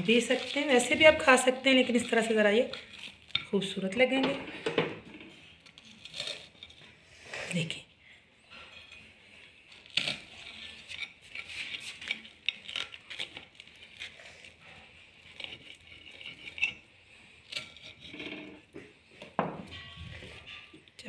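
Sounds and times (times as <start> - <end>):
knife scraping ceramic plate: 0.0 - 3.6, 8.5 - 18.9.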